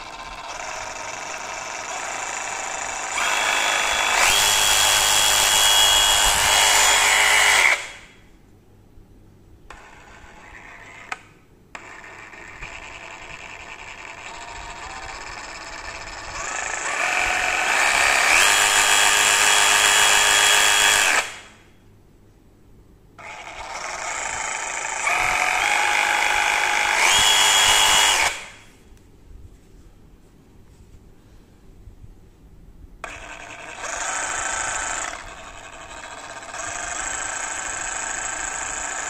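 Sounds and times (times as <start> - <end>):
reciprocating saw motor whine: 0.0 - 8.1, 12.6 - 21.5, 23.2 - 28.6, 33.0 - 39.0.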